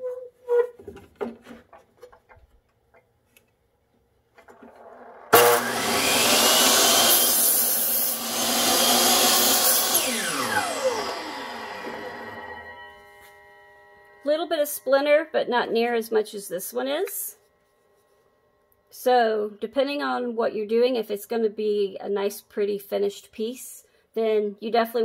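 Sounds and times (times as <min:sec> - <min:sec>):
chop saw cutting board: 0:04.6 - 0:12.8.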